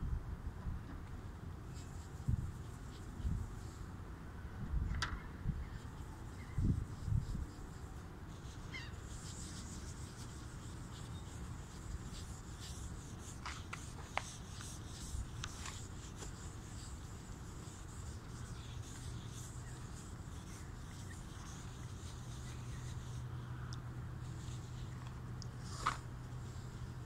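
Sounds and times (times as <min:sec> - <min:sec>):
rag rubbing on plastic: 0:05.8 - 0:23.2.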